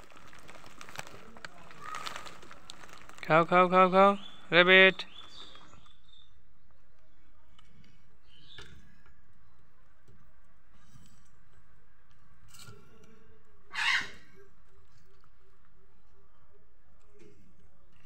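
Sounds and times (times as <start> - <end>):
rabbits scratching and nibbling: 0.0 - 3.4, 14.2 - 16.3
low background noise: 0.0 - 18.0.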